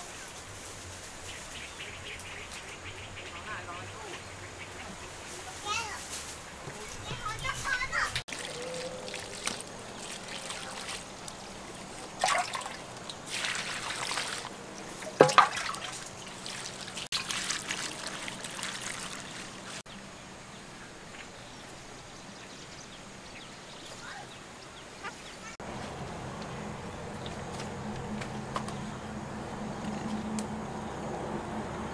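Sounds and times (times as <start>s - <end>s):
water splashing and trickling: 4.9s - 19.9s.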